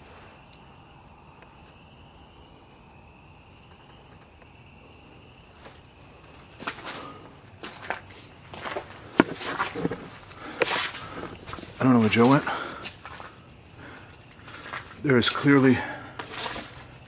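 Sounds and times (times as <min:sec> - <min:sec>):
night insect chorus: 0:00.0 - 0:17.0
footsteps in dry leaves: 0:06.5 - 0:17.0.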